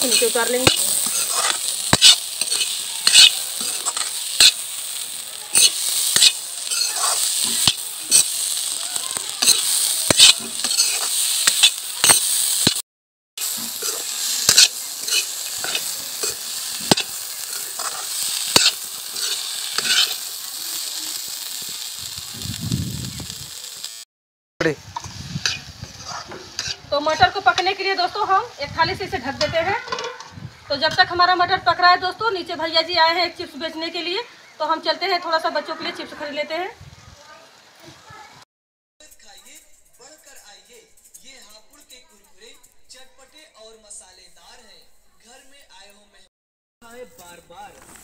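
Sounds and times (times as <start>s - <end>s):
metal ladle scraping pan: 0.0s - 12.8s, 13.4s - 20.3s, 25.0s - 27.7s, 29.5s - 30.4s
peas sizzling in hot oil: 0.0s - 12.8s, 13.4s - 38.4s.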